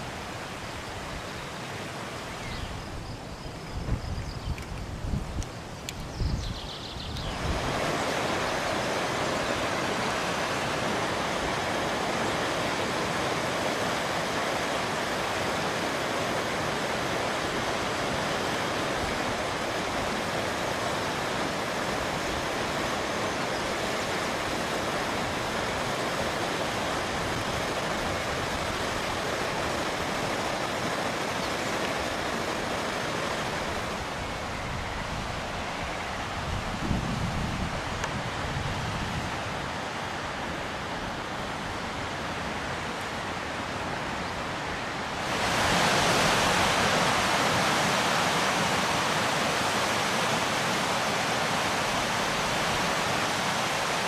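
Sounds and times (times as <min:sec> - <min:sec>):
stream rushing over boulders: 0:00.0 - 0:54.0.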